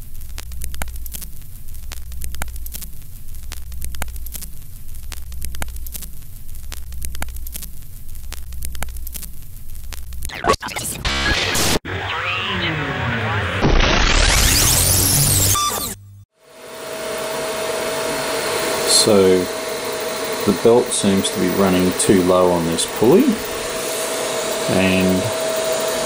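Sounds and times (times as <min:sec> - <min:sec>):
low hum with static crackle: 0:00.0 - 0:13.4
burst of noise: 0:10.2 - 0:16.0.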